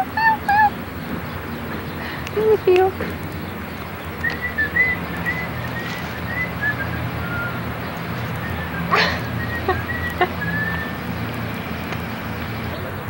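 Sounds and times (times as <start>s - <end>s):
dog whimpering: 0.0s - 0.8s.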